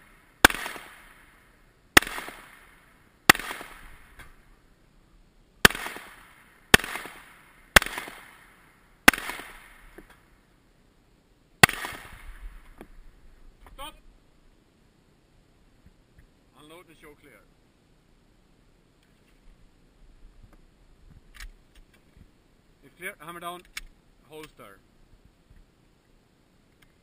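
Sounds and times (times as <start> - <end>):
pistol shots with echo: 0.4 - 1.3, 2.0 - 4.3, 5.6 - 10.0, 11.6 - 12.7.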